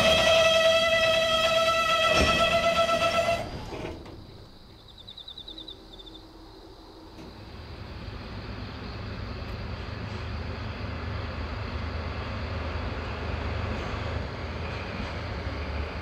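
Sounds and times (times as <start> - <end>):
train brakes squealing: 0.0 - 4.0.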